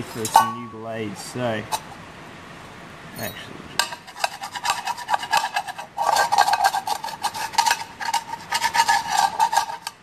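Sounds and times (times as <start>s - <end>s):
steady metallic ring: 0.2s - 1.0s
scraper scraping metal blade: 3.8s - 10.0s.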